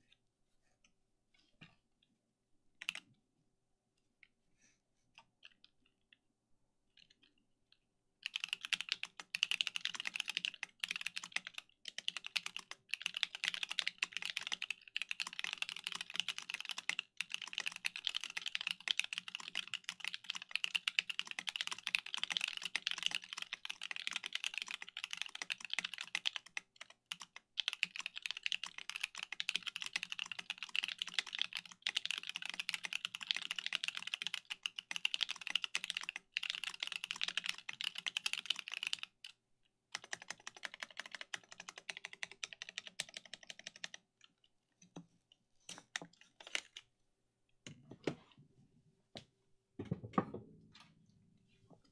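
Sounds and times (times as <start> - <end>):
mechanical keyboard typing: 2.8 - 3.0, 8.2 - 44.1, 45.7 - 46.8.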